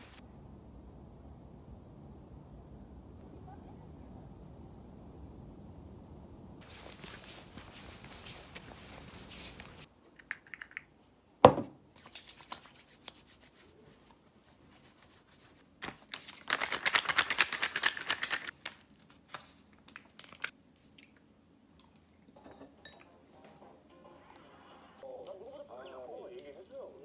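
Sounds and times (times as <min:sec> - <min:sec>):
plastic pouch tearing and rustling: 0:15.8 - 0:20.6.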